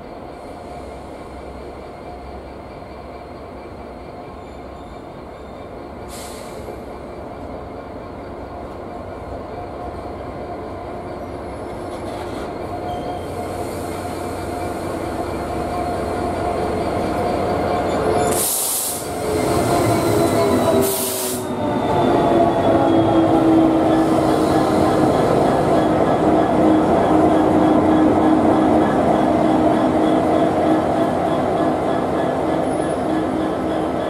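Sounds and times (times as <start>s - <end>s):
diesel locomotive passing: 0.0s - 34.0s.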